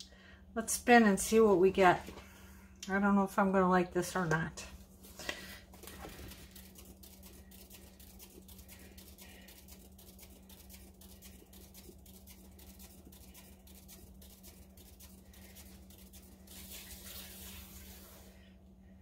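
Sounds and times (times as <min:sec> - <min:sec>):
spinner rapid ticking: 0:05.8 - 0:16.9.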